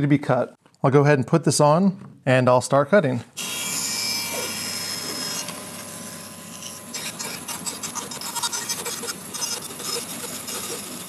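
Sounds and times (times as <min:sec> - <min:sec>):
bandsaw running: 0:03.4 - 0:11.0
saw rasping through plywood: 0:03.4 - 0:11.0.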